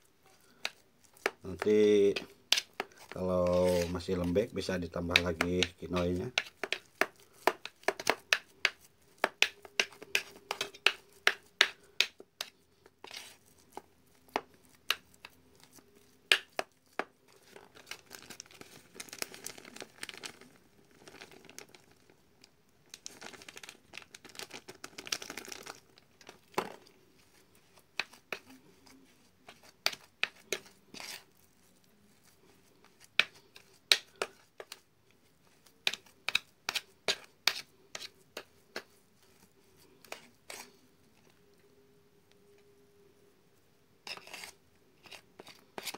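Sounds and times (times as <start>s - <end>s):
rustling: 0.0s - 4.5s
hands kneading sticky dough: 0.0s - 41.5s
faint steady hum: 25.8s - 45.8s.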